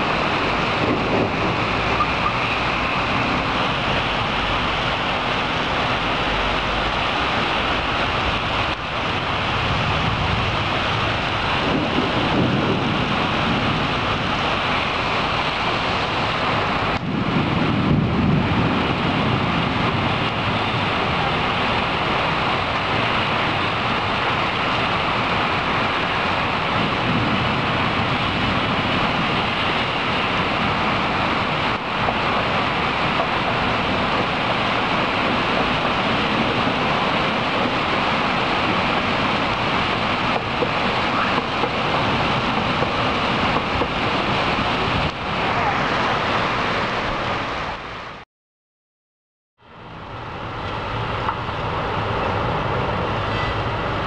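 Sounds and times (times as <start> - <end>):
heavy rain: 0.0 - 48.2, 49.6 - 54.0
wind: 0.0 - 48.2, 49.6 - 54.0
low thunder rumbles: 3.0 - 45.7.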